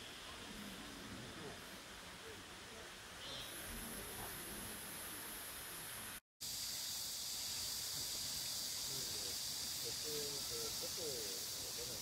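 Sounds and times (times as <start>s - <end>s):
faint distant voices: 0.0s - 6.2s, 8.8s - 12.0s
insect chorus: 0.0s - 12.0s.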